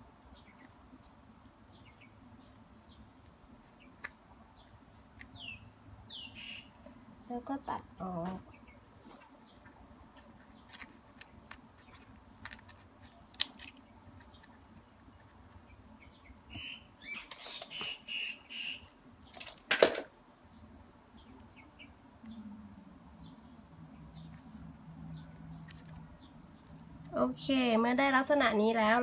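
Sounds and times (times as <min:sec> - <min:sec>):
high chirp-like squeaks: 0:16.5 - 0:18.9.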